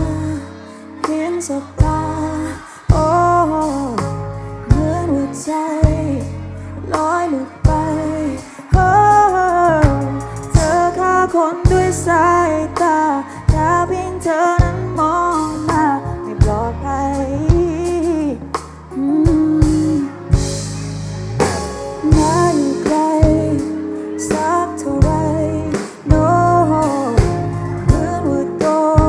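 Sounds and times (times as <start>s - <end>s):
bass: 0.0s - 29.0s
person singing: 0.0s - 29.0s
regular drum beats: 7.0s - 11.0s, 17.5s - 29.0s.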